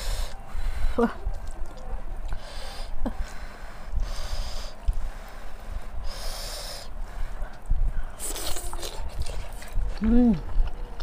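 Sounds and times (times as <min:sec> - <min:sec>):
chewing: 0:01.2 - 0:02.4, 0:07.4 - 0:11.0.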